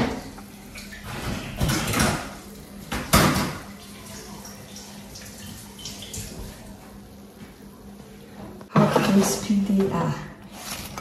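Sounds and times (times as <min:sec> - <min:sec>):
fries scraping on metal tray: 0:10.5 - 0:11.0.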